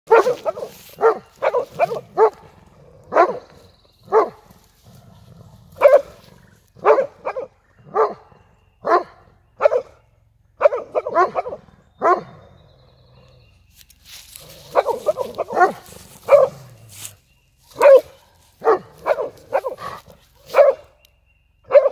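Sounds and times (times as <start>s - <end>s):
dog barking: 0.1s - 2.5s, 3.1s - 3.5s, 4.1s - 4.4s, 5.8s - 6.2s, 6.8s - 10.0s, 10.6s - 12.4s, 14.7s - 16.7s, 17.8s - 21.0s, 21.7s - 21.9s.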